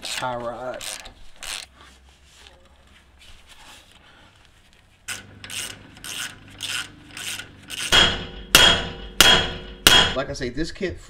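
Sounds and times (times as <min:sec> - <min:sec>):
socket ratchet clicking: 0:05.1 - 0:08.0
hammer strike on steel: 0:07.9 - 0:10.3.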